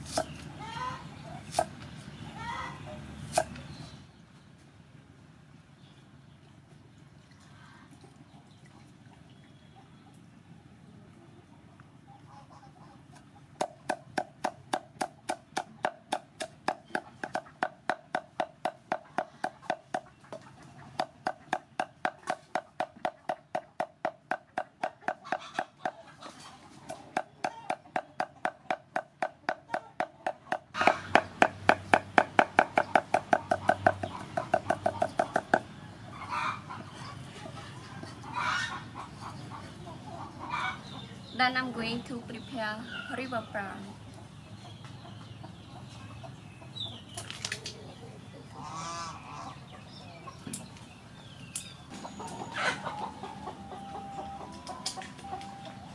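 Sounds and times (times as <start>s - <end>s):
cleaver chopping on wooden block: 13.6s - 20.1s, 21.0s - 26.0s, 27.1s - 35.6s.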